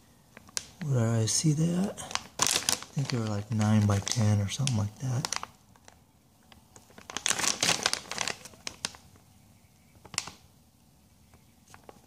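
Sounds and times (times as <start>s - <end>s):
plastic bag crinkling: 0.3s - 9.2s, 9.9s - 10.4s.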